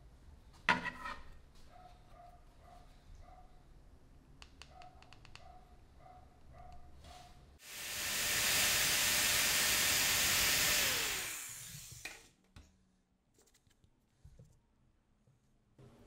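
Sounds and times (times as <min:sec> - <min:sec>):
electric drill boring plastic: 0:07.6 - 0:12.2.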